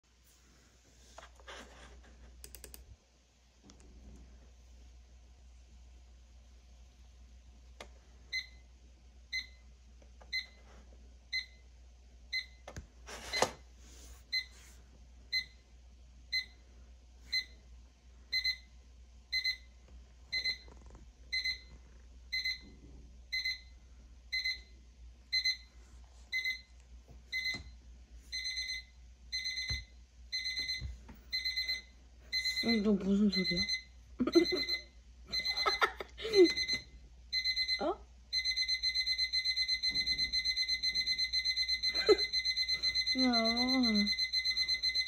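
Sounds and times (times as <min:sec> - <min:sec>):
digital thermometer beeping: 0:18.3 - 0:18.7, 0:19.3 - 0:19.7, 0:20.3 - 0:21.7, 0:22.3 - 0:22.7, 0:23.3 - 0:23.7, 0:24.3 - 0:24.7, 0:25.3 - 0:25.7, 0:27.3 - 0:45.0.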